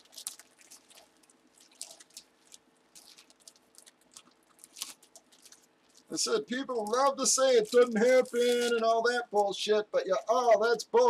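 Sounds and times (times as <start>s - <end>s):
packaging crinkling and clicking: 0.0s - 6.1s, 7.3s - 8.8s.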